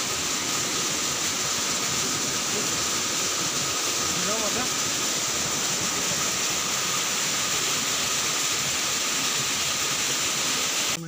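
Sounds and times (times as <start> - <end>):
water rushing: 0.0 - 11.0.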